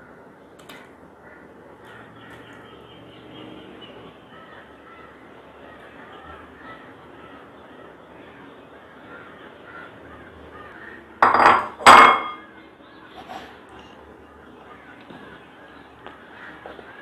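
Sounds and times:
crows cawing: 1.1 - 2.7, 4.2 - 11.5, 14.3 - 17.0.

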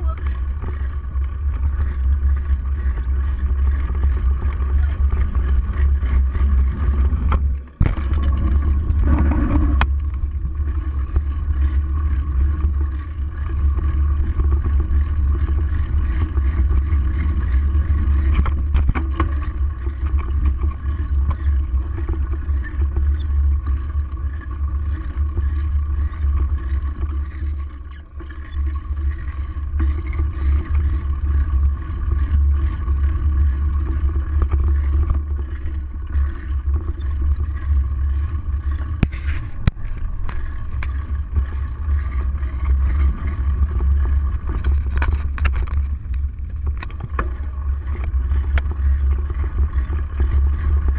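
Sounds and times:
bicycle rolling rumble on dirt: 0.0 - 50.9.

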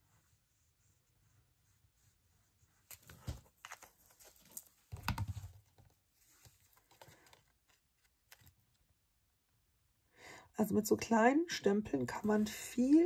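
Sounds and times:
paper rustling and tapping: 2.9 - 8.7.

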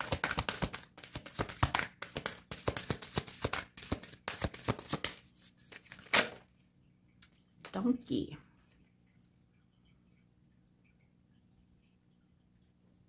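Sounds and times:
cards being shuffled: 0.0 - 6.4.

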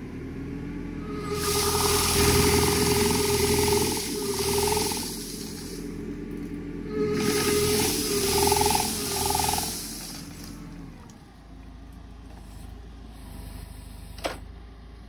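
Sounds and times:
low engine hum: 0.0 - 15.0
trunk shaker running: 1.1 - 10.9.

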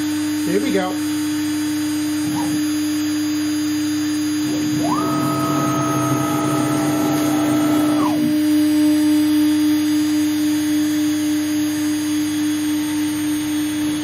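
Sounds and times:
router spindle humming: 4.4 - 8.8
stepper motors whining: 4.5 - 8.5.

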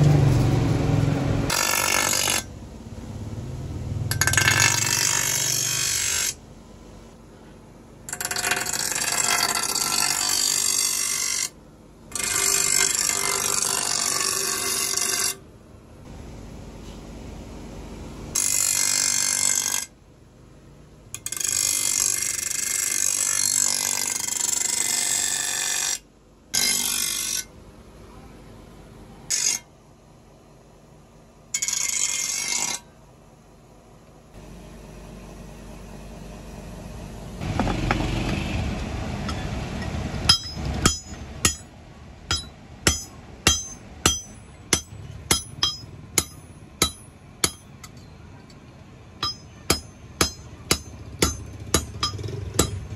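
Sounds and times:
blade on grinding wheel: 1.0 - 2.5, 4.1 - 6.4, 8.1 - 15.4, 18.4 - 19.9, 21.2 - 26.0, 31.6 - 32.9
hammer striking metal on anvil: 4.1 - 6.4, 39.3 - 48.2, 49.2 - 52.9.

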